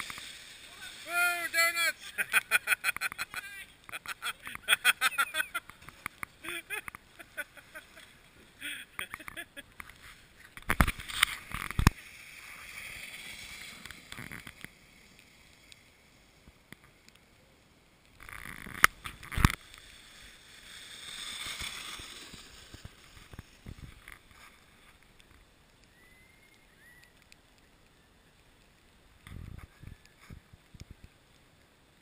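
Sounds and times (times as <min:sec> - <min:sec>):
sleds scraping over icy pavement: 0:00.0 - 0:16.7, 0:18.2 - 0:27.1.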